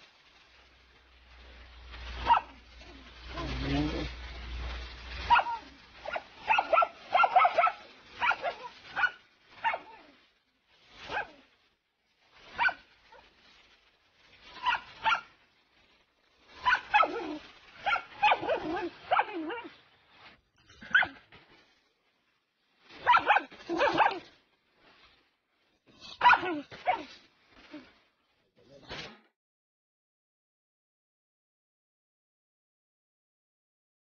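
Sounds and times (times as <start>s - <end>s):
dog barking: 2.2s - 2.6s, 5.2s - 10.2s, 11.0s - 11.4s, 12.5s - 13.3s, 14.5s - 15.3s, 16.5s - 19.8s, 20.8s - 21.2s, 23.0s - 24.3s, 26.0s - 27.2s.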